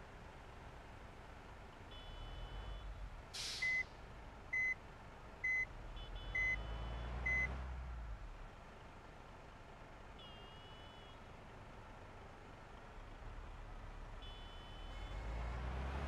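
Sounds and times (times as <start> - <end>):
brief hiss: 3.4 - 4.0
short electronic beeps: 5.5 - 7.5.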